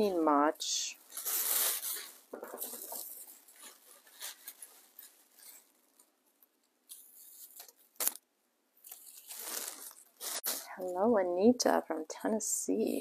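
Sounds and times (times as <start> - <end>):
raffia strands rustling: 0.0 - 8.2, 8.8 - 11.1.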